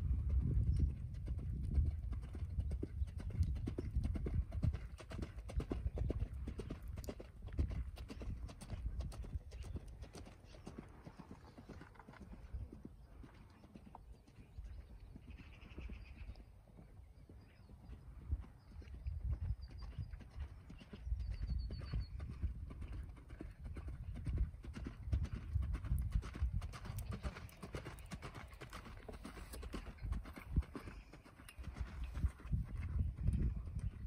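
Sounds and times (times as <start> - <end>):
horse hoofbeats on sand: 19.8 - 34.0.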